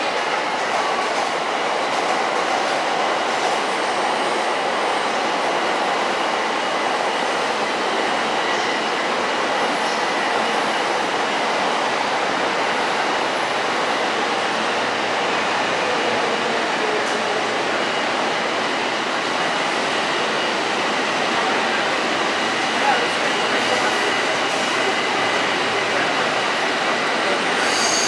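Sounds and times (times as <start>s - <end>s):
faint wheel squeal: 27.6s - 28.0s.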